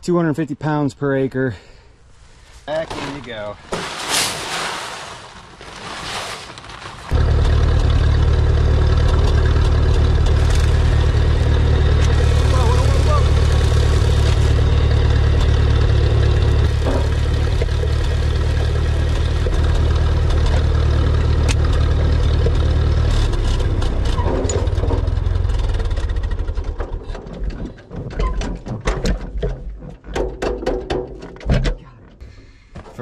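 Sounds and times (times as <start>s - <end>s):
tractor engine running: 7.0s - 31.4s.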